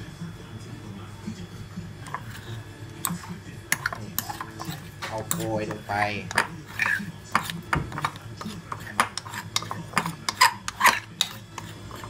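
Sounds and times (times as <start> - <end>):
spoon scraping ceramic bowl: 2.0 - 12.0
spoon clinking against bowl: 3.0 - 12.0.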